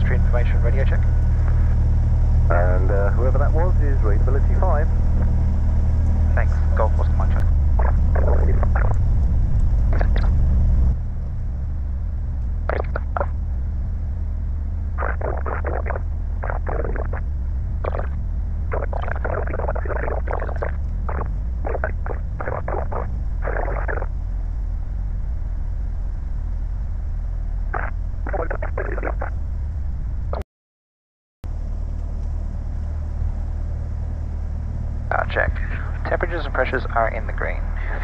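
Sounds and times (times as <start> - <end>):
muffled crackly bursts: 0.0 - 11.0, 12.5 - 13.6, 14.9 - 24.5, 27.6 - 29.4, 35.1 - 38.0
airplane engine idling: 0.0 - 30.4, 31.5 - 38.0.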